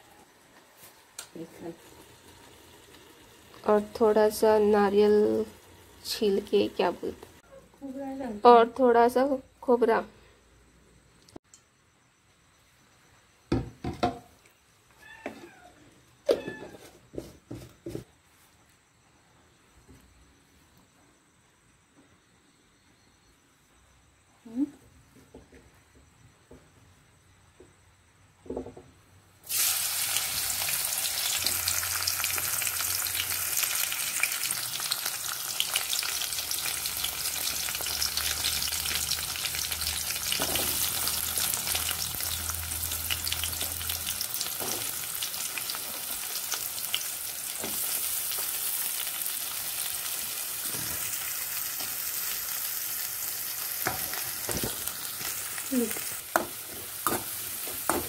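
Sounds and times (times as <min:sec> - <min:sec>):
vegetables sizzling in oil: 0:00.0 - 0:09.8, 0:29.4 - 0:58.0.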